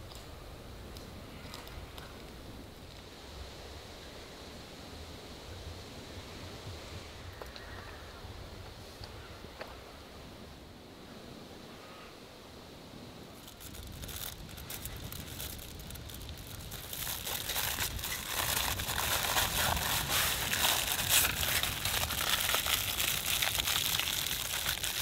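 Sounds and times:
packaging crinkling and rustling: 0:13.4 - 0:25.0.

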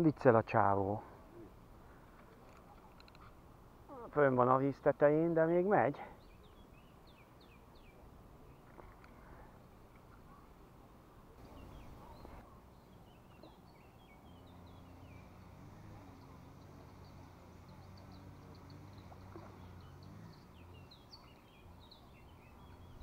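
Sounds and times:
small birds chirping: 0:01.2 - 0:23.0
low steady hum: 0:06.2 - 0:23.0.

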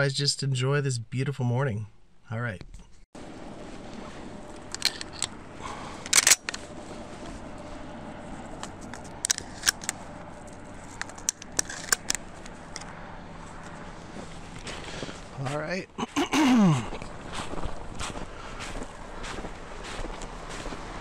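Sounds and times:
footsteps crunching in snow: 0:12.2 - 0:21.0.

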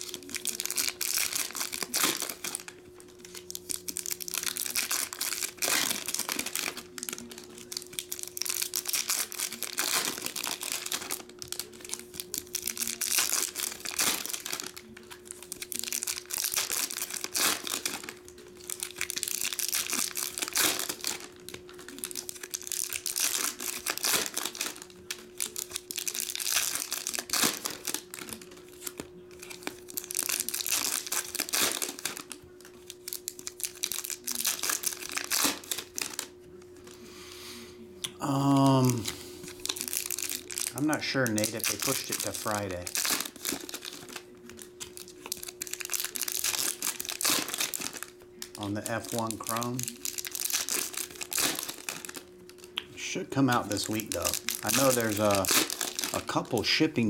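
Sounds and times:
foil wrappers tearing and crinkling: 0:00.0 - 0:37.0, 0:38.3 - 0:57.0.

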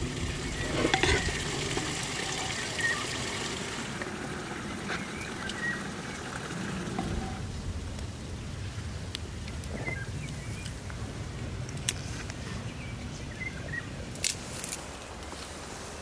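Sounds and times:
low rumble: 0:00.0 - 0:04.8
birds chirping: 0:00.0 - 0:07.4.

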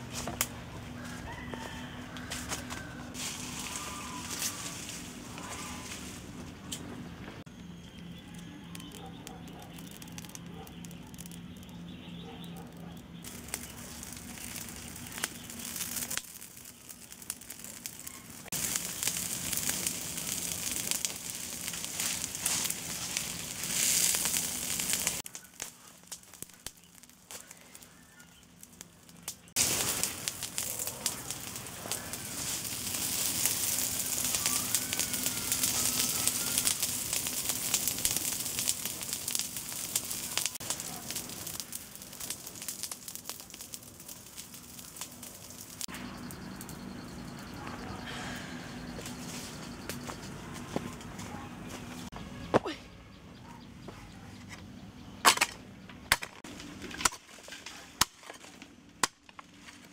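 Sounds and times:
dry leaves burning with crackle: 0:00.0 - 0:53.2, 0:55.0 - 0:59.9.

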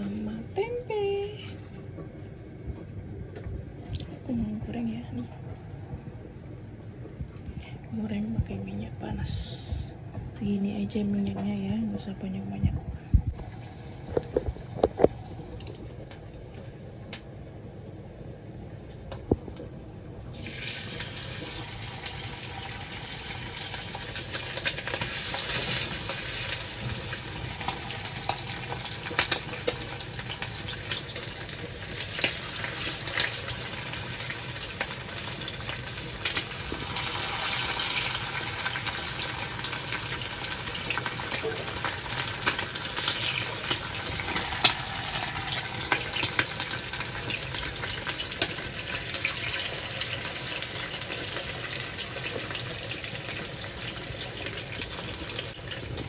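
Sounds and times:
chicken frying in oil: 0:13.4 - 0:56.0.

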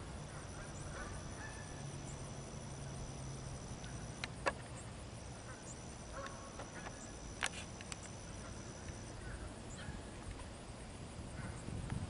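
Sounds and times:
distant waterfowl honking: 0:00.3 - 0:01.9.

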